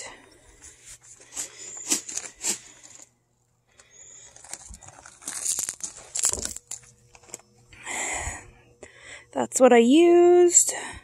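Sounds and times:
footsteps on gravel: 4.4 - 6.8.

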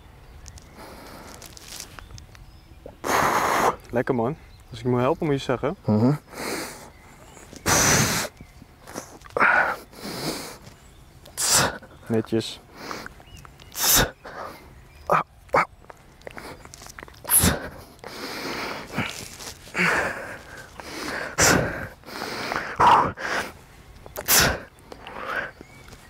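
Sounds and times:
man exhaling hard and grunting: 21.0 - 23.5.

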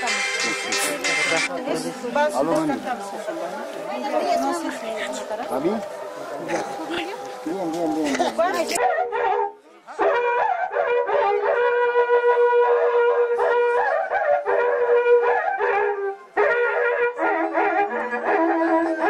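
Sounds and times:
wind instruments playing folk tune: 2.7 - 19.0.

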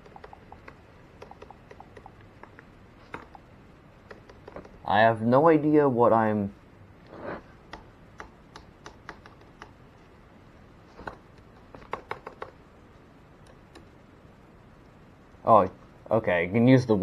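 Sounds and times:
laptop keyboard clicks: 0.0 - 3.4, 4.0 - 4.8, 7.7 - 9.8, 11.0 - 12.6.

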